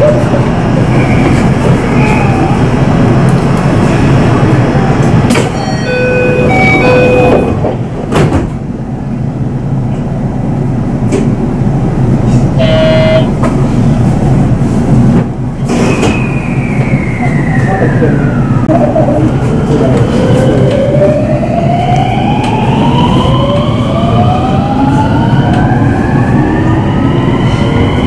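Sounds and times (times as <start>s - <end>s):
electric train rumbling: 0.0s - 28.0s
buzzer-like tone: 12.6s - 13.3s
short electronic tones: 12.6s - 13.3s.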